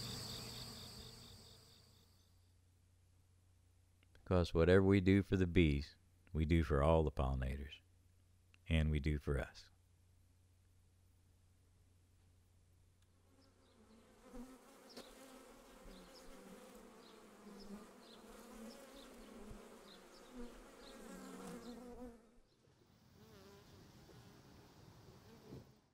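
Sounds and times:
bees buzzing: 0.0s - 2.0s, 13.4s - 22.4s.

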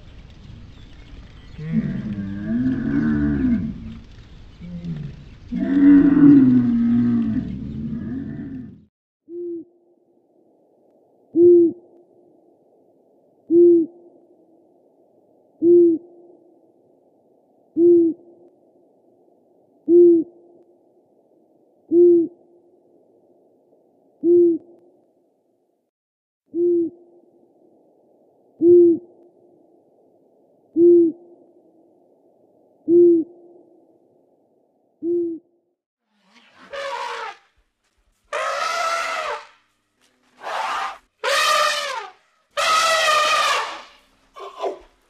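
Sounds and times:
camel groaning: 4.6s - 8.9s, 36.3s - 37.4s, 38.3s - 39.6s, 40.3s - 45.0s
owl hooting: 21.9s - 22.4s, 28.6s - 29.2s, 38.3s - 39.6s, 40.4s - 45.0s.

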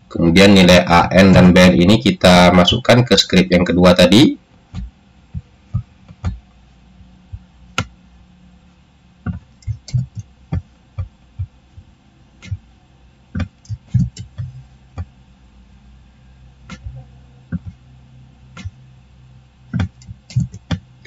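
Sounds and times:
faint low hum: 0.0s - 21.0s
computer mouse clicks: 19.7s - 20.8s
keyboard key presses: 19.7s - 20.8s.

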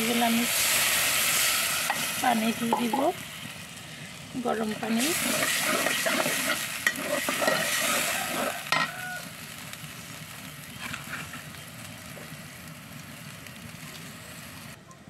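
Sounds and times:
water sizzling in hot oil: 0.0s - 14.8s
metal spoon scraping a pot: 4.8s - 8.9s.

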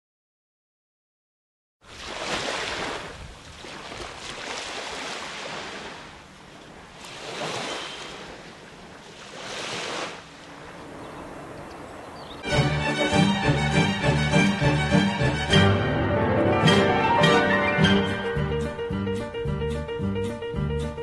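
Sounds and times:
surf washing onto beach: 1.8s - 11.5s.

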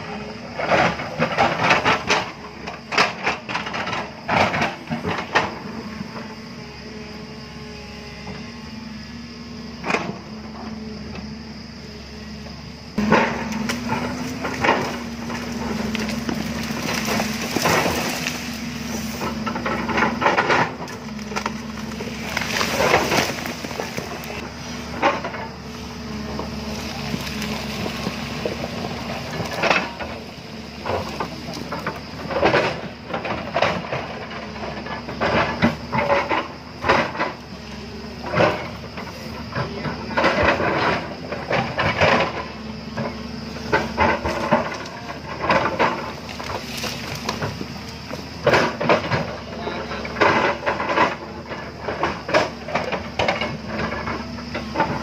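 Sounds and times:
excavator diesel engine humming: 0.0s - 55.0s
soil and rock sliding down: 11.9s - 55.0s
bucket scraping: 13.0s - 30.2s.

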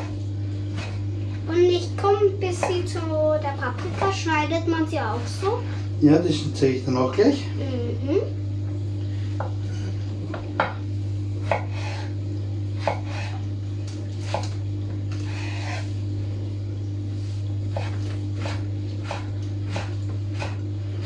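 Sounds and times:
steady low hum: 0.0s - 21.0s
knife chopping on wooden board: 2.6s - 2.9s, 3.8s - 4.2s, 11.4s - 12.1s, 12.8s - 13.4s, 14.2s - 14.6s, 17.7s - 20.6s.

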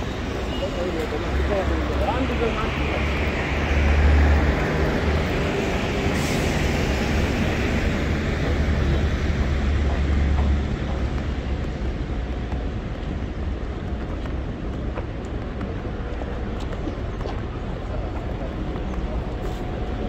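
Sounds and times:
deep traffic rumble: 0.0s - 20.0s
passing vehicles hiss: 0.8s - 10.2s.

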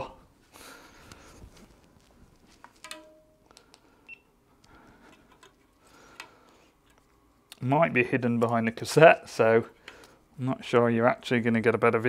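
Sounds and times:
small clicks and rustles: 1.0s - 3.9s.

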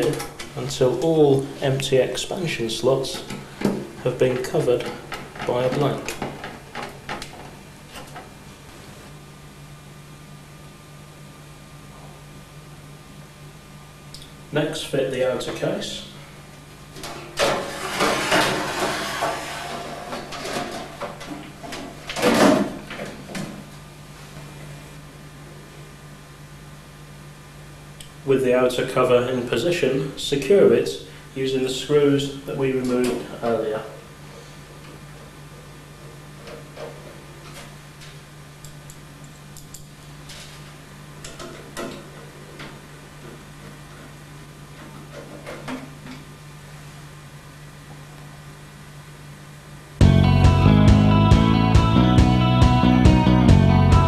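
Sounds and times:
steady low hum: 0.0s - 54.0s
metal cover scraping and rattling: 17.4s - 21.3s.

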